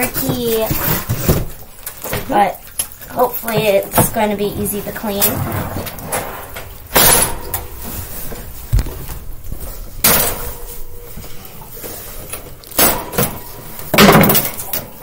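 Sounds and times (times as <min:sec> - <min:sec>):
wire cage panels clattering: 0:02.8 - 0:15.0
loud sudden bursts: 0:05.1 - 0:11.8.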